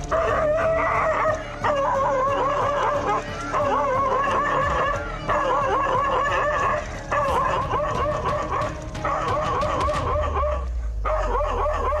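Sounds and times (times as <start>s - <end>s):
dog barking furiously: 6.7s - 12.0s.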